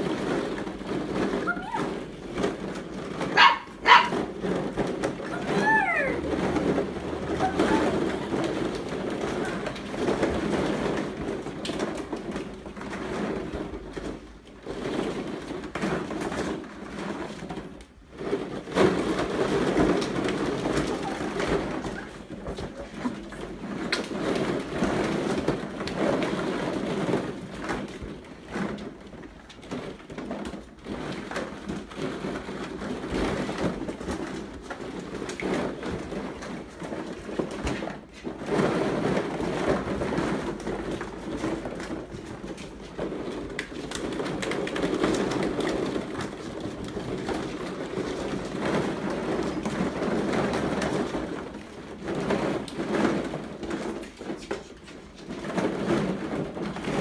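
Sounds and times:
plastic balls rustling and clattering: 0:00.0 - 0:57.0
puppies cooing softly: 0:05.3 - 0:06.4.

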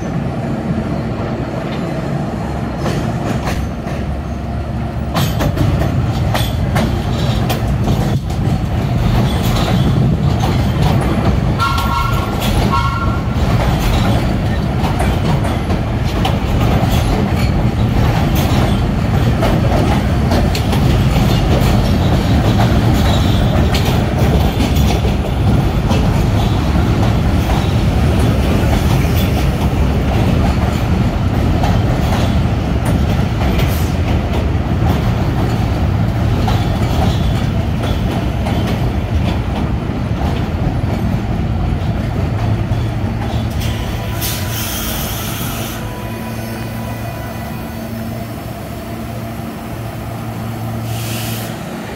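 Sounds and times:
subway train rumbling: 0:00.0 - 0:51.9
wheels clacking over rail joints: 0:02.8 - 0:04.3, 0:05.0 - 0:44.6
two-note train horn toot: 0:11.6 - 0:13.3, 0:43.7 - 0:48.4.

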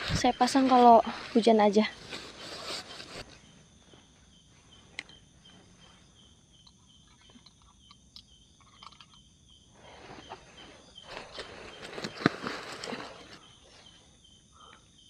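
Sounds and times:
rustling and shuffling in tent: 0:00.0 - 0:06.9, 0:09.7 - 0:14.2
insects chirping: 0:00.0 - 0:15.0.

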